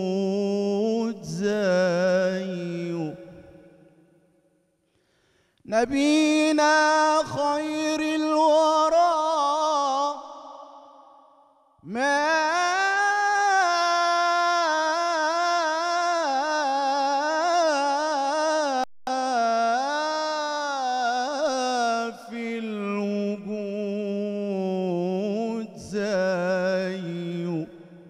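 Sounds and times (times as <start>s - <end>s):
man singing devotional song: 0.0s - 4.0s, 5.6s - 28.0s.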